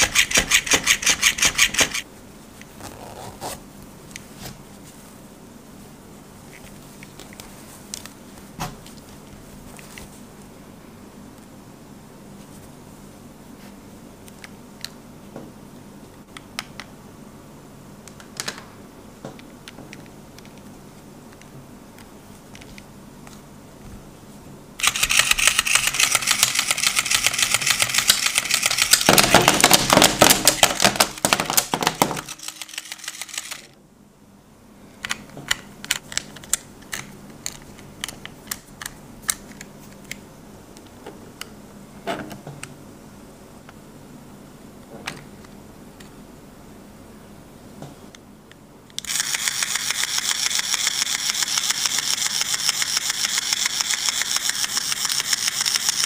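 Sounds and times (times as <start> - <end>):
screwdriver ticks: 0.0 - 2.0, 24.8 - 29.1, 49.0 - 56.0
toy motor mechanical clatter: 0.0 - 2.0, 24.8 - 29.4, 32.0 - 33.7, 49.0 - 56.0.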